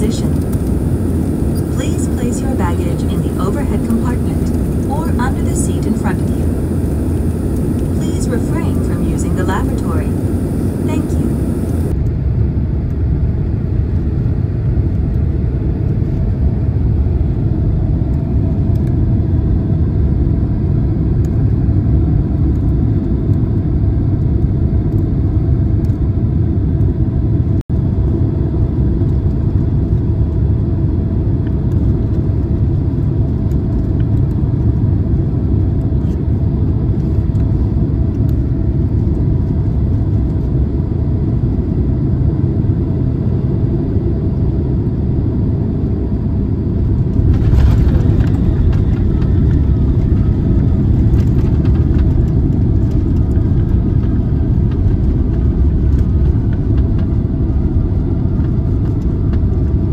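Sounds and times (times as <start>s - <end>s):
faint steady hum: 0.0s - 12.0s
airplane cabin rumble: 0.0s - 59.9s.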